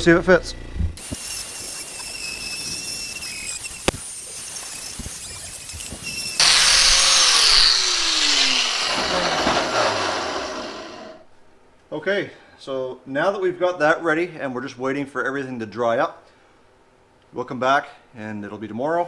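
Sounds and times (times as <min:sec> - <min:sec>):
angle grinder wire wheel on metal: 0:01.0 - 0:11.2.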